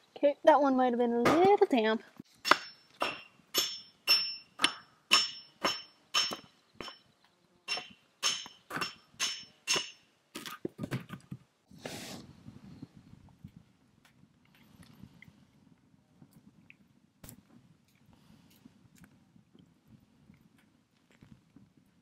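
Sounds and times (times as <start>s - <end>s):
hammer striking metal: 2.4s - 7.0s, 7.7s - 10.1s.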